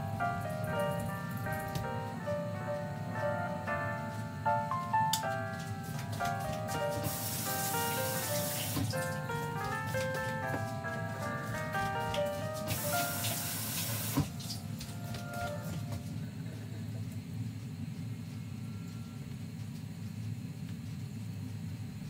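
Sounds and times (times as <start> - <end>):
background music melody: 0.0 - 16.2
water running from a tap: 6.9 - 9.2, 12.6 - 14.7.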